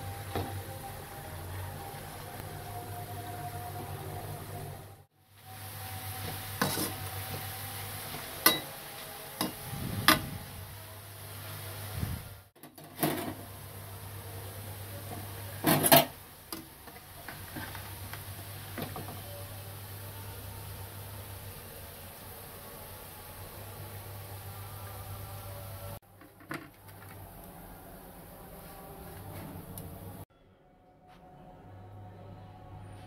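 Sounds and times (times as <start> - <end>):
onions frying in oil: 0.0 - 26.0
metal spatula scraping a pan: 6.2 - 8.7.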